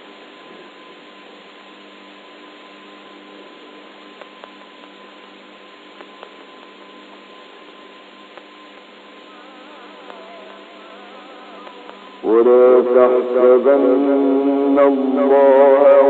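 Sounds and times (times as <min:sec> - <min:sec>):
recording hiss and hum: 0:00.0 - 0:16.0
faint clicks: 0:10.0 - 0:10.6, 0:11.6 - 0:12.1.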